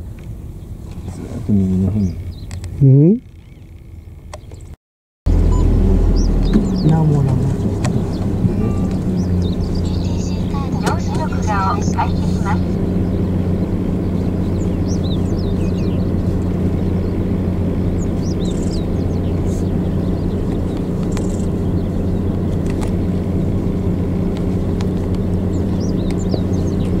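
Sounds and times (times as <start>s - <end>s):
vehicle engine idling: 0.0s - 4.7s, 5.3s - 27.0s
faint bird chirps: 8.0s - 10.6s, 18.0s - 20.4s.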